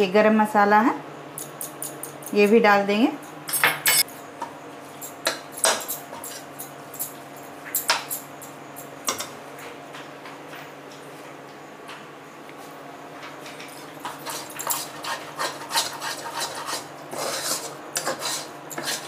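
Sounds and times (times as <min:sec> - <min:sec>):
spatula scraping steel pan: 0:14.0 - 0:19.0.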